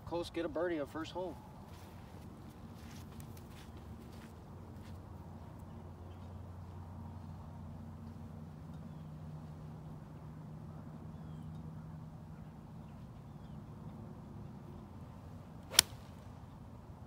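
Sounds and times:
golf club striking ball: 15.7s - 16.1s.

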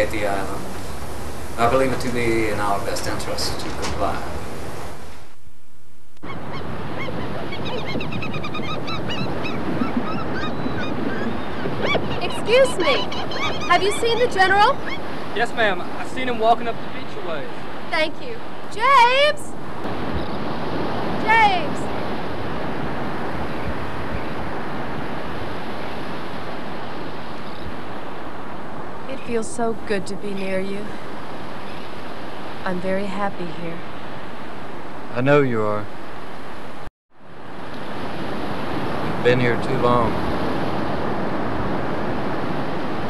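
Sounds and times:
surf breaking on beach: 0.0s - 5.3s
wind: 0.0s - 43.0s
wind buffeting microphone: 6.2s - 35.2s.

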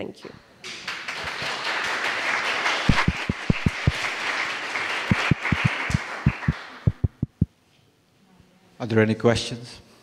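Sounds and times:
audience applauding: 0.7s - 7.3s
low thumps: 2.9s - 4.0s, 5.1s - 7.5s.

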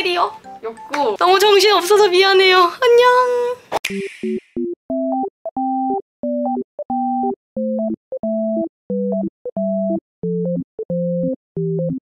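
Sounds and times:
bouncy synthesizer tune: 3.8s - 12.0s.

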